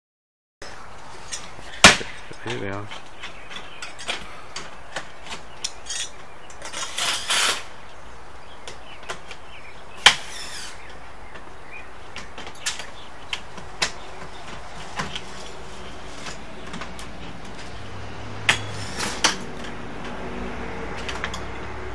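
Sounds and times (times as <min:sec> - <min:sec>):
tools clinking on metal roof: 0:01.2 - 0:07.6, 0:12.2 - 0:19.8, 0:21.0 - 0:21.6
rushing scrape: 0:05.9 - 0:07.7, 0:18.6 - 0:19.4.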